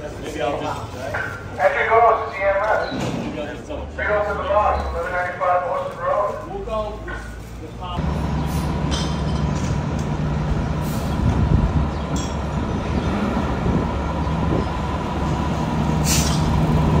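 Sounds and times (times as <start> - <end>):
fire engine diesel engine running: 4.0 - 17.0
short air hiss: 16.0 - 16.4.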